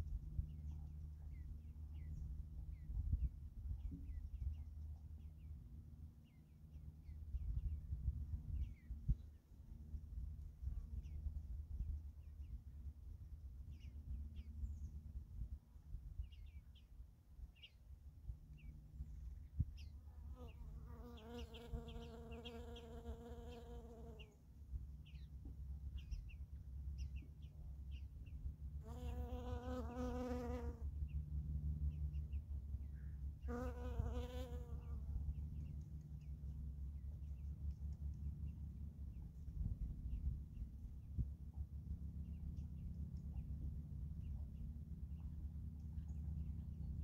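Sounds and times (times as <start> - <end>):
wind rumble on microphone: 0.0 - 20.6, 35.0 - 45.4.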